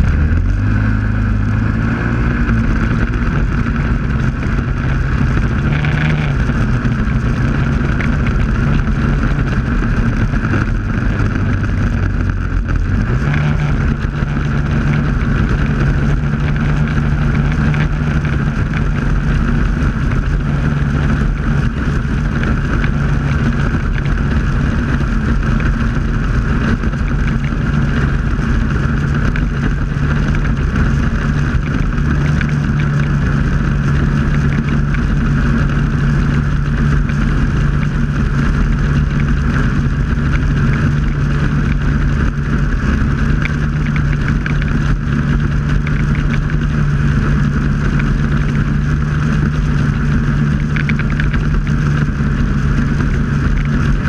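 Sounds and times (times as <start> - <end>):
rumble of the ride: 0.0 - 54.0
snowmobile engine droning: 0.0 - 54.0.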